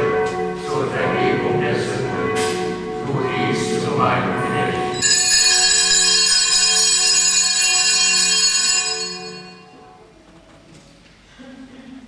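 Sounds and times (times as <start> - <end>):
altar bells ringing: 4.9 - 10.0.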